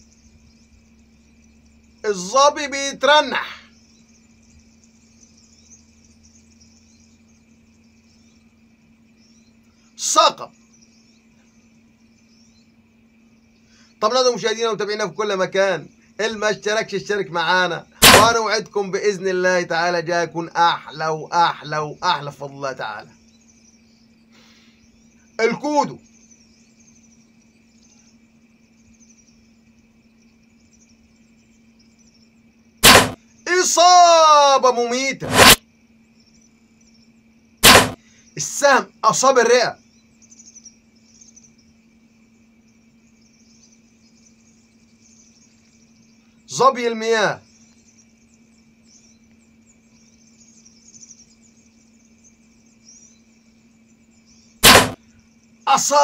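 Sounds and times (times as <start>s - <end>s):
faint high-pitched hum: 0.0s - 56.0s
insects chirping: 0.0s - 56.0s
loud sharp crack: 18.0s - 18.4s, 32.8s - 33.2s, 35.2s - 35.6s, 37.6s - 38.0s, 54.6s - 55.0s.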